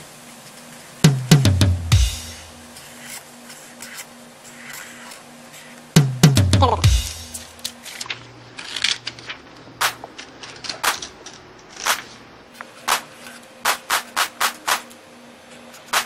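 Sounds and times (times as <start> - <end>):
felt-tip pen scratching on paper: 2.8 - 5.8
paper rustling: 2.8 - 5.9, 7.3 - 15.0.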